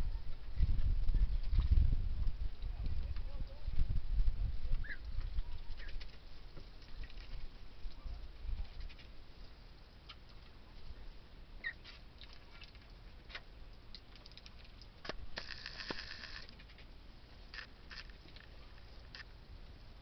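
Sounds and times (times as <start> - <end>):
water patter: 5.6 - 8.1, 11.6 - 19.4
ducklings dabbling clicks: 11.6 - 16.9.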